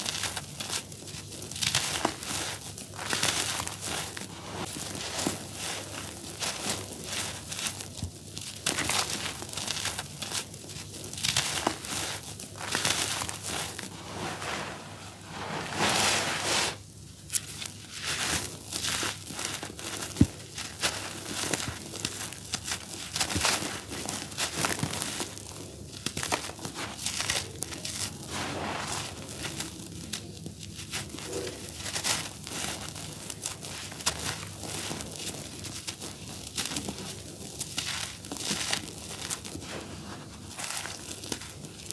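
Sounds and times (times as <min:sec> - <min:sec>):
charcoal crumbling by hand: 0:00.0 - 0:41.9.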